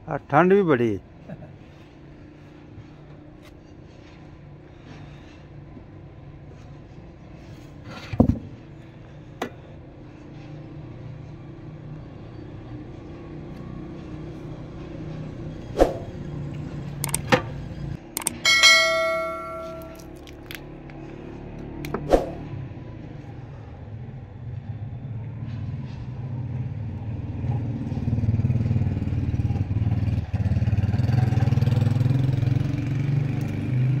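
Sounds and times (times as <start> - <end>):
pot ringing like a bell: 18.3 - 20.0.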